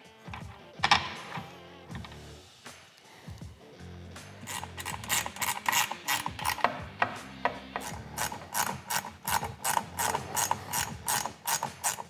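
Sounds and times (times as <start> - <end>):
ratchet wrench clicking: 4.4 - 12.0.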